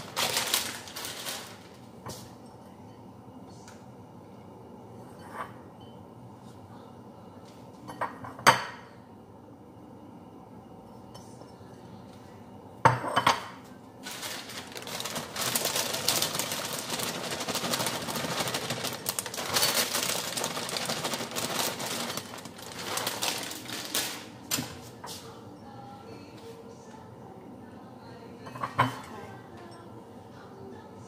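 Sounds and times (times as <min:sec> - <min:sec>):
plastic bag crinkling: 0:00.0 - 0:01.8, 0:14.0 - 0:24.5.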